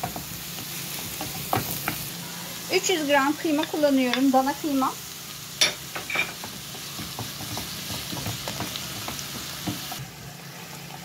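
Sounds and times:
food sizzling in frying pan: 0.0s - 11.0s
wooden spoon scraping and tapping pan: 1.0s - 2.0s, 5.7s - 10.0s.

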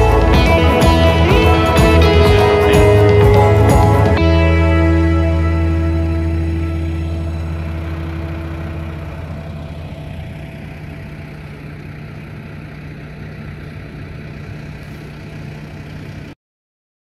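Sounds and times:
background music: 0.0s - 8.9s
diesel truck engine idling: 0.0s - 16.4s.

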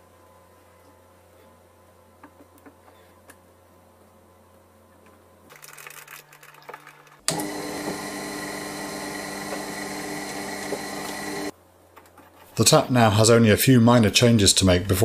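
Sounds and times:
milling machine motor whining: 7.3s - 11.5s.

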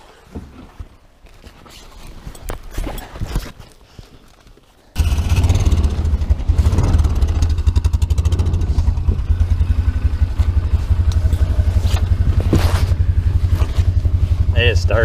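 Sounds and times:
engine starting and running: 5.0s - 15.0s.

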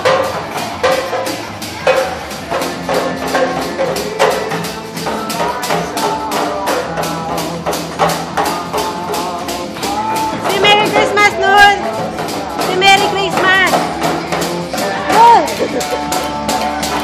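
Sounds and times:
dance music with fast beat: 0.0s - 17.0s.

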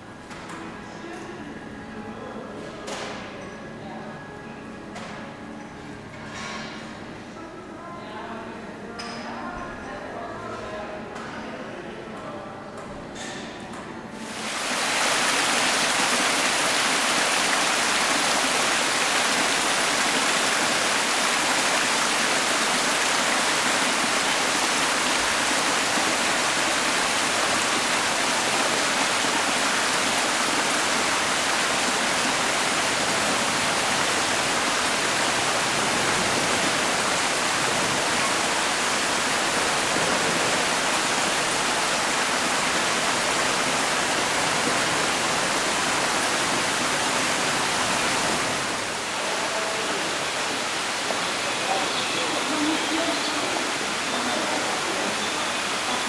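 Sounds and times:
water splashing into pond: 14.3s - 51.8s.

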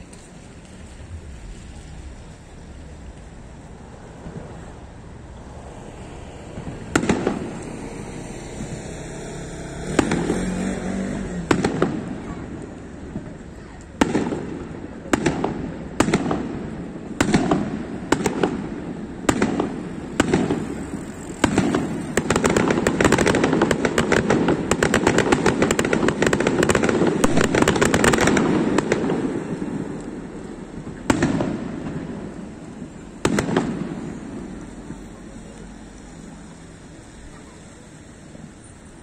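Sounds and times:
firework bangs echoing: 6.4s - 8.8s, 9.8s - 35.6s.

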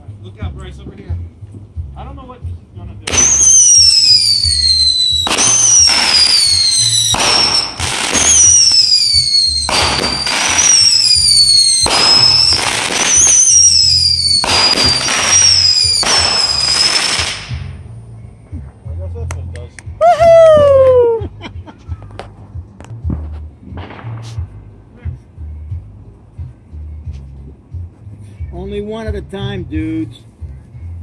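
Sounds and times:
firework whistling shots: 3.1s - 17.8s.

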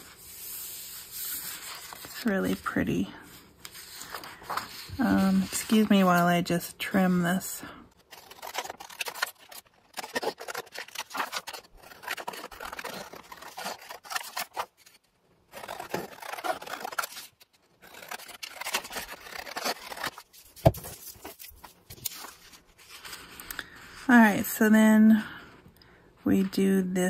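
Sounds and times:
paper rustling: 0.0s - 24.0s
scissors snipping paper: 8.0s - 23.3s.

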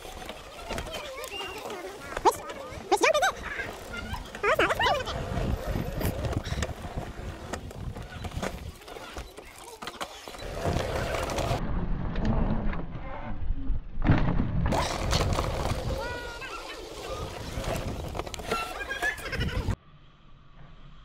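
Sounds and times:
bike rattling over bumps: 0.0s - 11.6s, 14.2s - 19.8s
bike tyres on dirt: 0.0s - 11.8s, 14.6s - 19.8s.

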